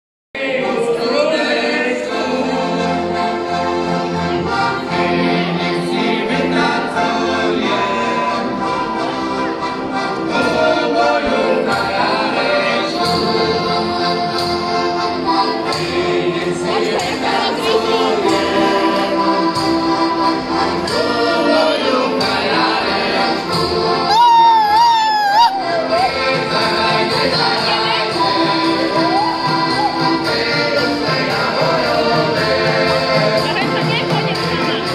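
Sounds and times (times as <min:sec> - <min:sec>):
men singing along: 0:00.4 - 0:03.2, 0:10.3 - 0:14.1, 0:15.6 - 0:19.7, 0:20.8 - 0:24.5, 0:25.5 - 0:34.0
button accordions playing folk tune: 0:00.4 - 0:34.9.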